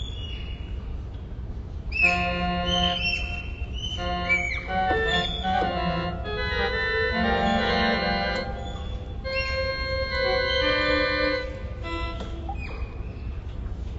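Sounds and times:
synthesizer sustained note clusters: 2.0s - 13.0s.

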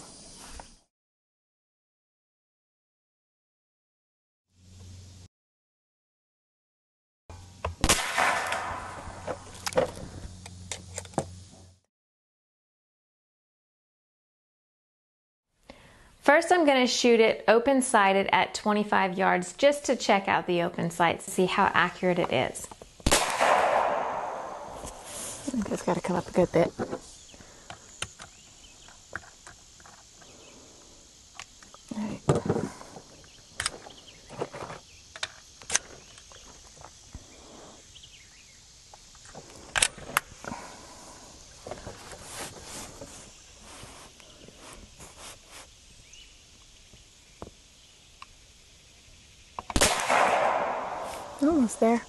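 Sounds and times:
air rifle shot: 7.8s - 9.3s, 23.0s - 25.0s, 49.8s - 51.4s.

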